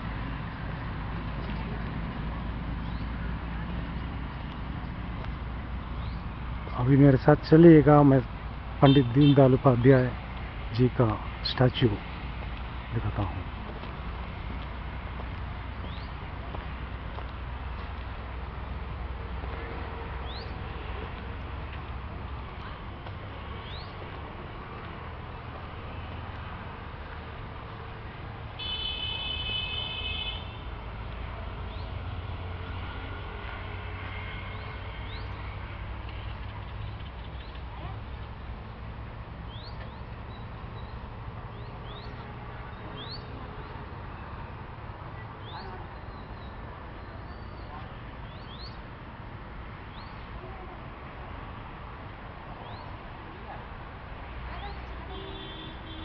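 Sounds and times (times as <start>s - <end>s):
birds chirping: 0.4s - 2.1s, 2.7s - 18.0s, 20.1s - 24.9s, 31.2s - 33.2s, 34.1s - 44.4s, 45.2s - 48.9s, 49.8s - 50.3s, 52.6s - 53.0s
rising bird chirps: 39.5s - 42.2s, 45.4s - 48.8s.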